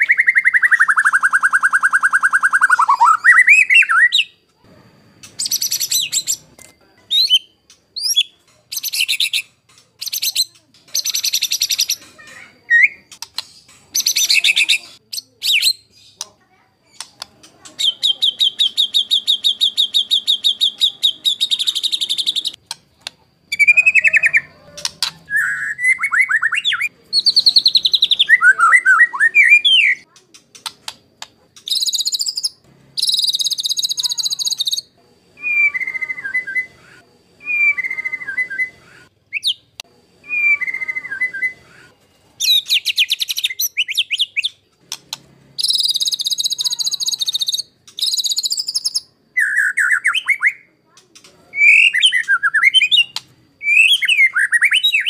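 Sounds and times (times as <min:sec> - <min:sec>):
bird singing whistled phrases: 0:00.0 - 0:04.4, 0:17.8 - 0:22.6, 0:23.5 - 0:30.1, 0:31.6 - 0:39.6, 0:40.2 - 0:44.6, 0:45.6 - 0:50.7, 0:51.5 - 0:55.0
harsh rapid bird rattling: 0:13.1 - 0:16.3, 0:30.1 - 0:34.9, 0:42.4 - 0:49.0.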